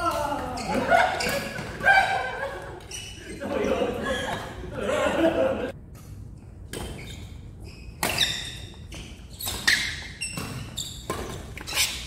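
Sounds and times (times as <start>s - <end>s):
shoes squeaking on court: 0.6s - 1.8s, 2.8s - 3.6s, 6.7s - 12.0s.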